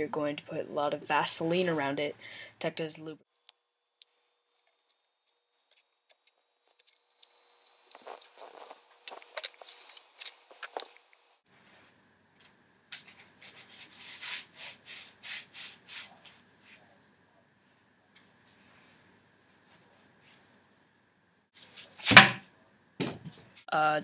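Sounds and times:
hands rubbing taped plastic pipe: 0:04.0 - 0:11.0, 0:12.9 - 0:16.8.

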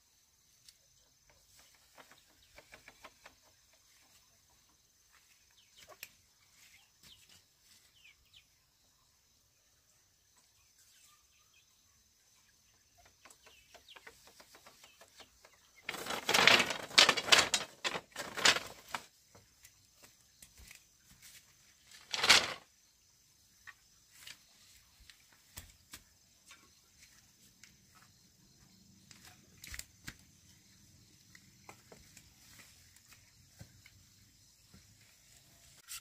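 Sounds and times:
bamboo slats clattering: 0:13.1 - 0:22.7.

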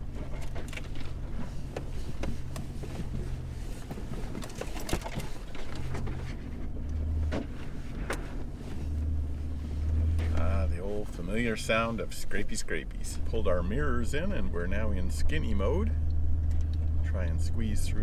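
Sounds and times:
branches scraping vehicle body: 0:00.0 - 0:11.9
vehicle engine running steadily: 0:00.0 - 0:18.0.

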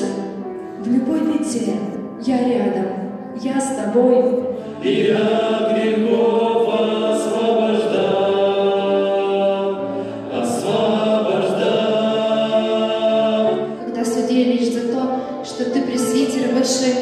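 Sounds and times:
male vocal quartet singing: 0:04.6 - 0:13.9.

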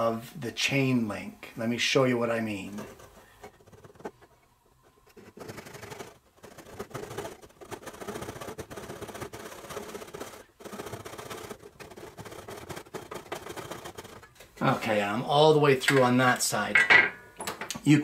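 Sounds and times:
saw cutting wood: 0:05.1 - 0:14.4.

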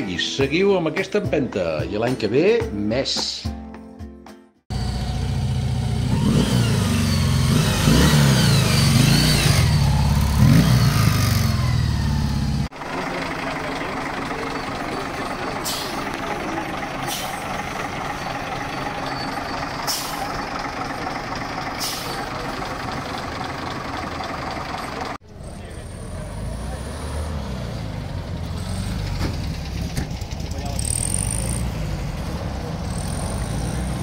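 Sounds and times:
motorcycle engine revving: 0:04.7 - 0:15.5, 0:24.8 - 0:34.0
lorry diesel engine running: 0:04.7 - 0:34.0.

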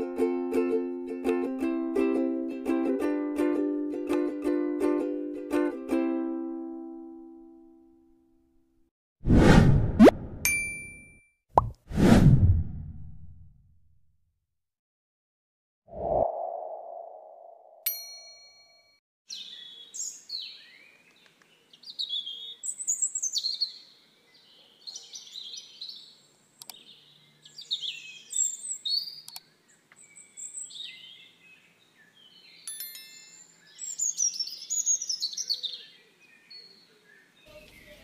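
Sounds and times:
songbirds singing: 0:19.3 - 0:38.0.

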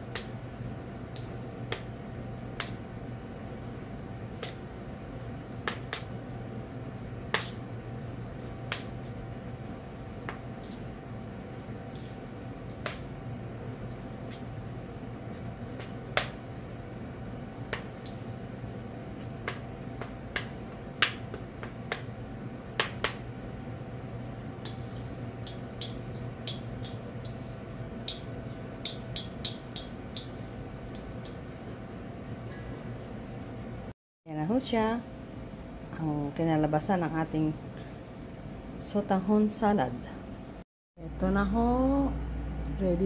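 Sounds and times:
chopsticks clicking against metal bowl: 0:25.4 - 0:27.4, 0:28.0 - 0:31.4.

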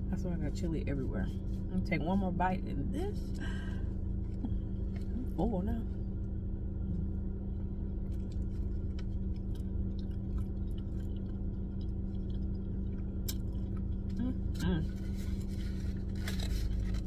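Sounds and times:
low hum in car cabin: 0:00.0 - 0:17.0
person chewing: 0:08.0 - 0:17.0.

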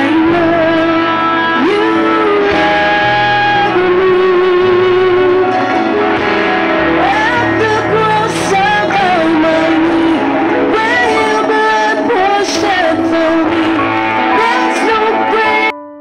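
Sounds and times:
women singing: 0:00.0 - 0:05.6, 0:07.0 - 0:15.8
band playing guitars and keyboard: 0:00.0 - 0:16.0.

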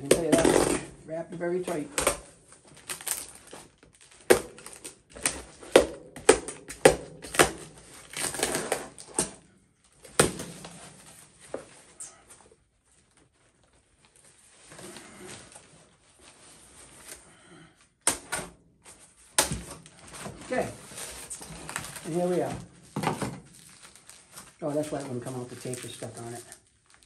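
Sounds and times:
packaging rustling: 0:01.5 - 0:12.0, 0:18.9 - 0:27.0
cardboard scraping tear: 0:02.1 - 0:09.4, 0:19.4 - 0:24.5.

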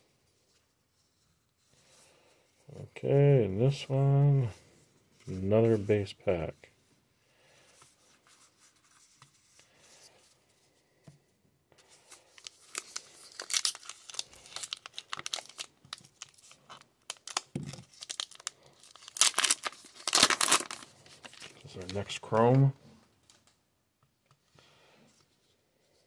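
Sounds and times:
card pack wrapper tearing: 0:12.3 - 0:22.5.

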